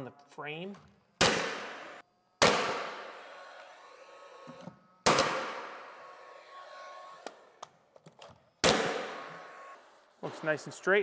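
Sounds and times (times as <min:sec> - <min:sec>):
nail gun firing into wood: 0:01.2 - 0:03.1, 0:05.0 - 0:05.9, 0:08.6 - 0:09.3.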